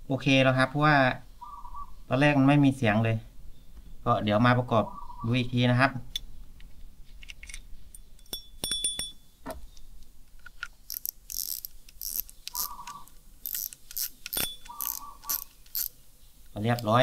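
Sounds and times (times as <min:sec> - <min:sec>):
small metal parts clinking: 0:07.2 - 0:09.2, 0:10.4 - 0:15.9
fishing reel ratcheting click: 0:10.9 - 0:15.9.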